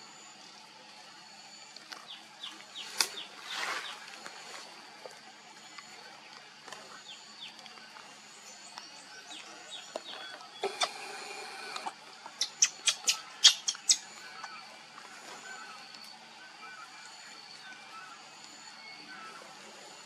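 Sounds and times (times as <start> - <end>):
baby monkey squealing: 12.4 - 14.0.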